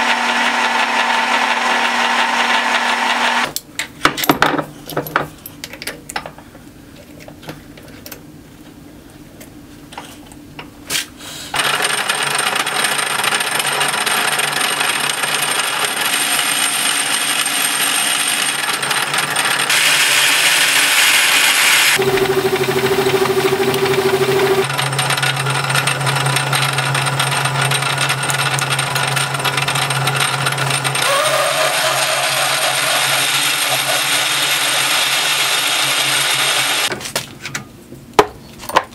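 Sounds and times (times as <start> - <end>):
metal lathe running: 0.0 - 3.5, 11.6 - 36.9
drill bit cutting steel: 19.7 - 24.7, 30.6 - 36.9.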